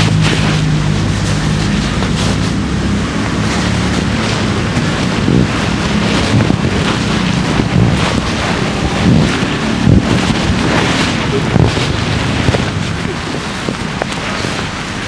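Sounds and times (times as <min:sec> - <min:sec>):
traffic engine hum: 0:00.0 - 0:15.0
wind buffeting microphone: 0:00.0 - 0:15.0.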